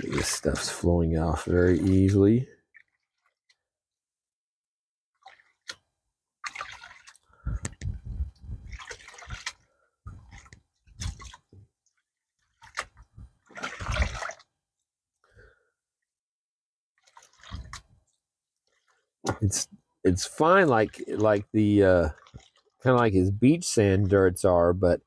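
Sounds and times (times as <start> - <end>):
water sloshing in a gold pan: 0.0 - 3.6, 5.2 - 14.6, 17.0 - 19.1, 20.1 - 24.2.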